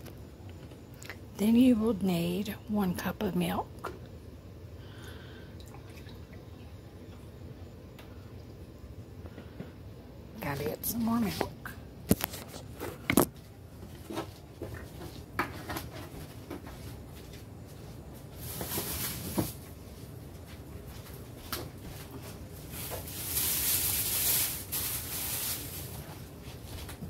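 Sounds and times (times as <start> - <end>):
rustling: 10.4 - 27.0.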